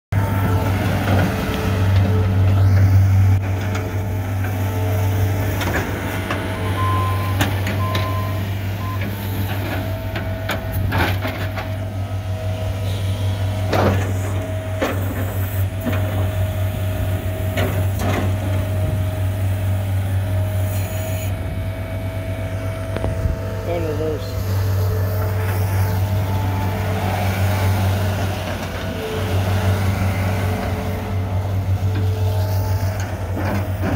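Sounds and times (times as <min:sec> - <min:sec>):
diesel engine under load: 0:00.1 - 0:33.9
hydraulic whine: 0:00.2 - 0:33.9.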